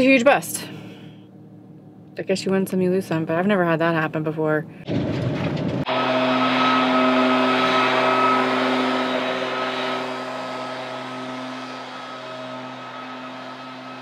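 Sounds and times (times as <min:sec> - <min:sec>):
leaf blower engine droning: 0:05.9 - 0:14.0.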